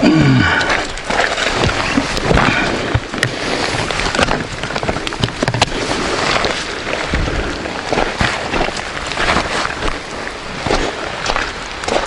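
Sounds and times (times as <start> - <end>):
wind and rain noise: 0.0 - 12.0
luggage clicks and knocks: 1.6 - 5.7.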